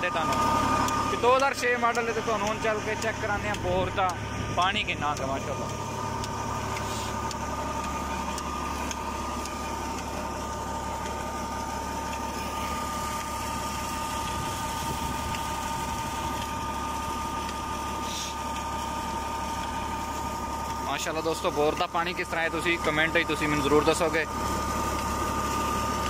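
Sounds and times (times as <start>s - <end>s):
steady high whine: 0.0s - 26.0s
tractor engine running under load: 0.0s - 26.0s
water gushing from pipe: 0.0s - 26.0s.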